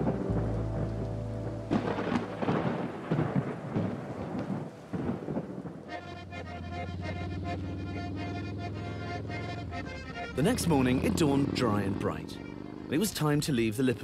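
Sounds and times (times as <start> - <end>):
thunder cracks and rumbles: 0.0 - 6.0
steady rain: 0.0 - 14.0.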